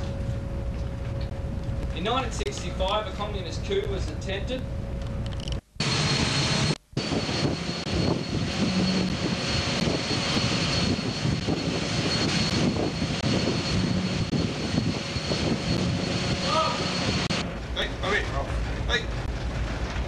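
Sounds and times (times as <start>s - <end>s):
wind buffeting microphone: 0.0s - 20.0s
rush of the sea: 6.0s - 17.9s.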